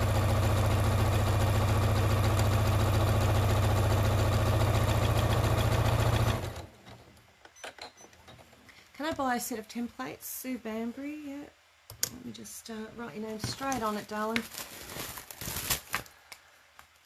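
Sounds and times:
sewing machine stitching: 1.6 - 7.0.

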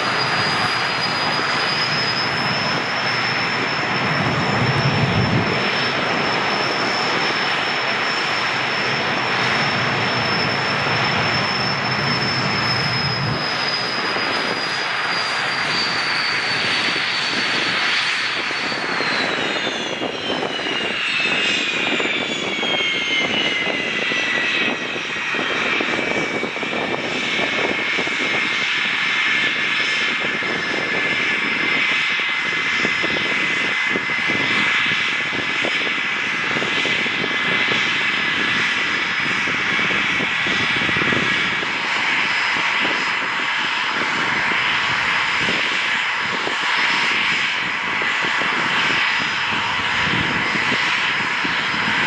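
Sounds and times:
high turbine whine: 0.0 - 52.0
jet engine roar: 0.0 - 52.0
low rumble: 2.2 - 13.6.

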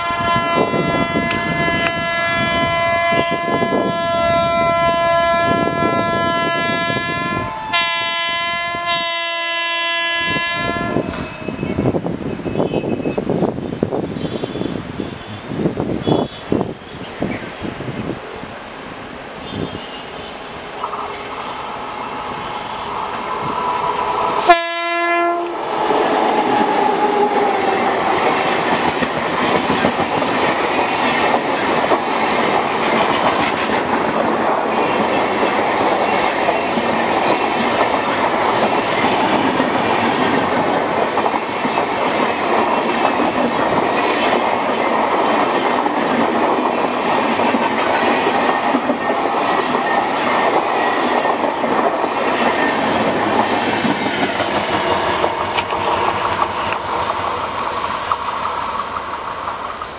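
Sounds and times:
train horn blast: 0.0 - 11.6, 19.4 - 23.5, 24.2 - 28.6
train coaches rumbling and clacking: 0.0 - 59.9
locomotive passing at speed: 20.0 - 59.9.

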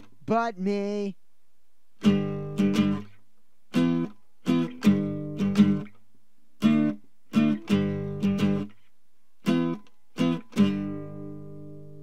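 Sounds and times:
acoustic guitar strummed chords: 2.0 - 6.0, 6.6 - 8.8, 9.4 - 12.0.

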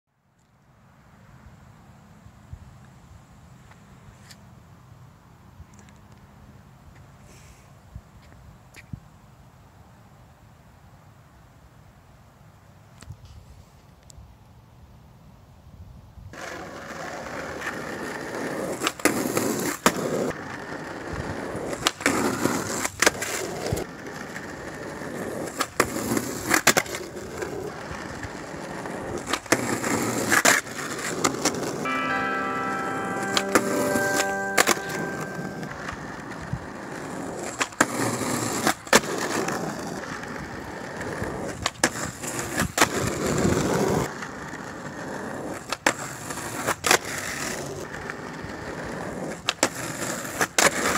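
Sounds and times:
skateboard wheels rolling on asphalt: 0.4 - 31.9, 35.6 - 50.9
skateboard clacking on pavement: 16.4 - 31.7, 35.9 - 50.9
ringing notes: 31.9 - 36.0.

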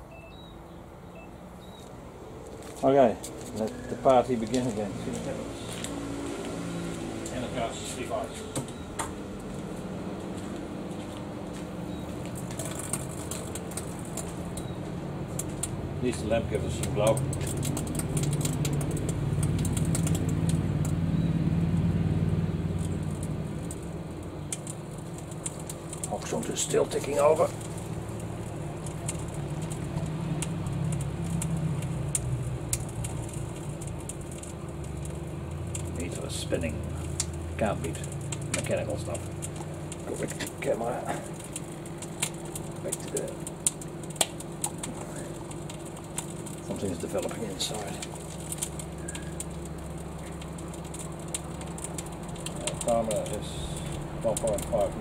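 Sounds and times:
microwave oven humming: 6.7 - 55.0
faint crackling ticks: 12.1 - 21.0, 22.8 - 55.0.

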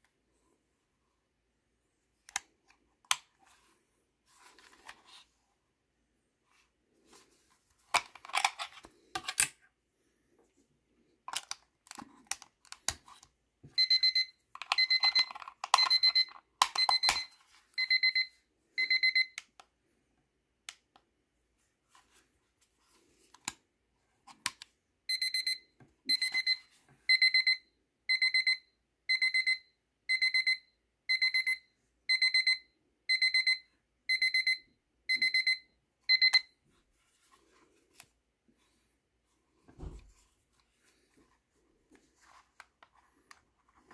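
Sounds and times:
alarm clock beeping: 13.8 - 19.4, 25.1 - 36.5.

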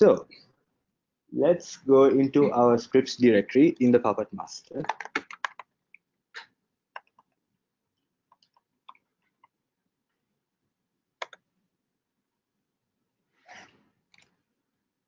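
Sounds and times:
computer keyboard keystrokes: 4.8 - 5.6, 11.2 - 11.4.

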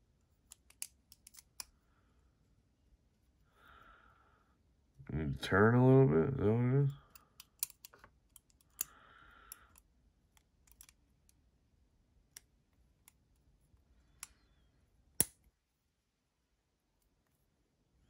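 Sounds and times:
small metal knife parts clicking: 0.5 - 1.7, 7.1 - 8.9, 10.6 - 11.0.

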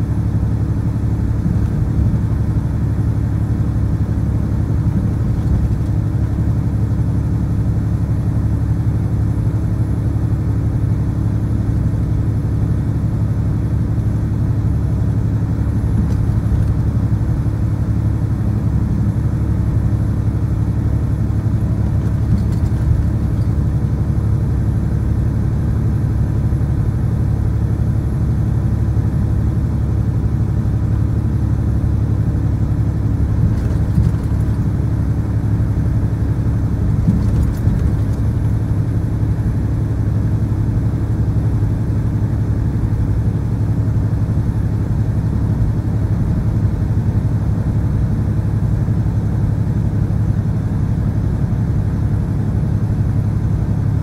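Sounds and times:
truck diesel engine drone: 0.0 - 54.0
tyre and road noise: 15.5 - 17.5, 20.8 - 24.7, 32.8 - 39.6.

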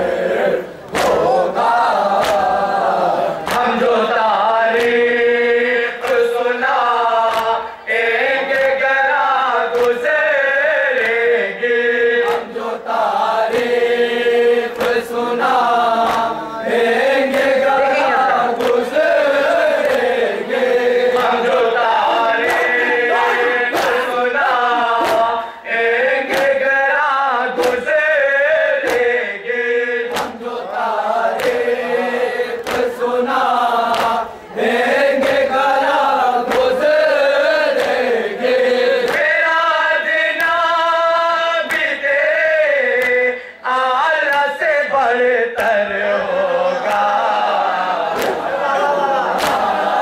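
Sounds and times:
men chanting into microphones: 0.0 - 50.0
hands slapping chests: 0.9 - 2.6, 3.4 - 3.8, 4.7 - 5.0, 6.0 - 6.4, 7.3 - 7.6, 8.5 - 8.8, 9.7 - 10.0, 12.3 - 12.6, 14.7 - 16.4, 17.2 - 25.5, 26.2 - 26.7, 27.6 - 27.9, 28.8 - 29.2, 30.1 - 30.5, 31.3 - 31.7, 32.6 - 34.3, 35.2 - 35.6, 36.4 - 36.8, 37.7 - 38.1, 39.0 - 39.4, 43.0 - 43.2, 48.0 - 48.5, 49.3 - 49.9.

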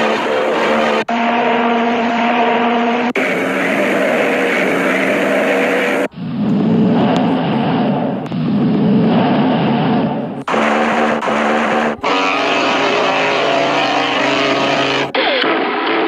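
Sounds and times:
rough noisy horn blast: 0.0 - 16.0
low ship horn note: 10.5 - 15.1.

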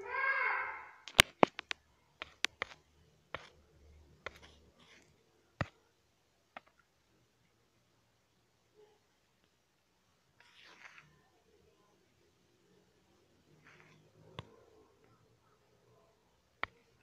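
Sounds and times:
sharp clicks and taps: 1.0 - 3.6.

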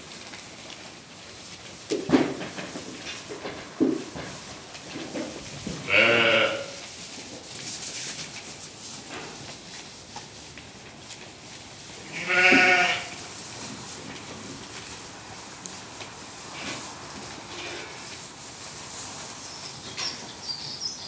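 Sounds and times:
sheep bleating: 5.8 - 6.8, 12.0 - 13.2.

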